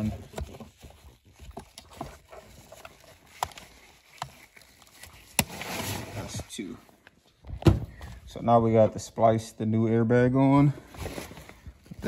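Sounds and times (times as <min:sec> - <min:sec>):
gloved hands handling tool: 0:00.0 - 0:06.2.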